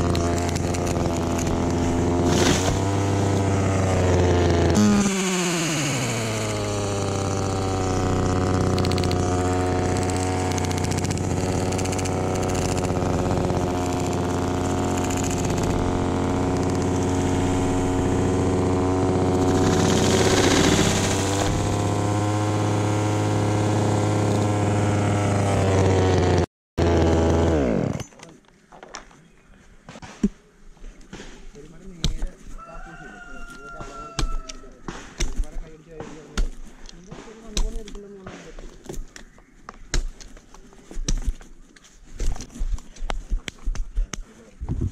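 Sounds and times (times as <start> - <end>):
chainsaw engine idling: 0.0 - 28.0.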